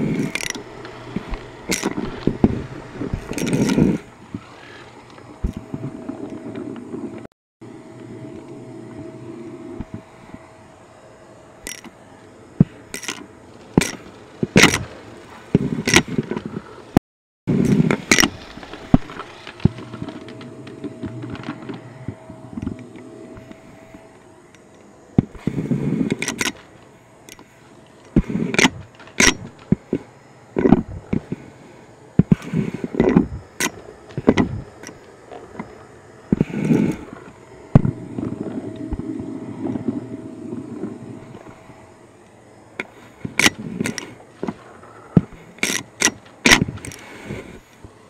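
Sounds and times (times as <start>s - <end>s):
vacuum tool scraping and knocking: 0.0s - 4.8s, 32.2s - 41.6s
vacuum cleaner humming: 0.0s - 16.8s, 17.5s - 45.8s.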